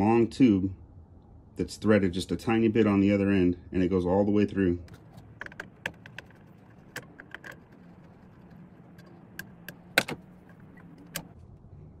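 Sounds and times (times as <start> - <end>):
screwdriver and small parts clicking: 5.4 - 11.3.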